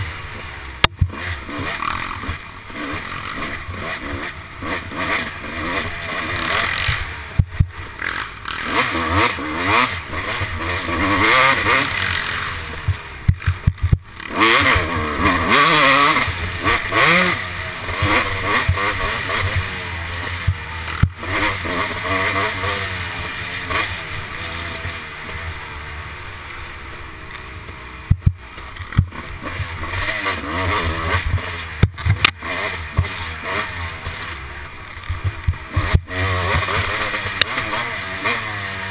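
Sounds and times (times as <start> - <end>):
dirt bike engine revving: 0.0 - 38.9
bike hitting bumps: 10.4 - 19.8, 27.7 - 38.5.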